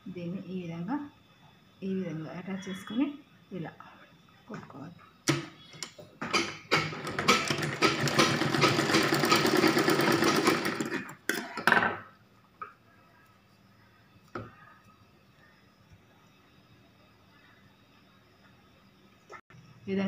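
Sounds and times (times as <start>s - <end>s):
sewing machine clicks: 5.3s - 11.1s
sewing machine stitching: 6.3s - 11.2s.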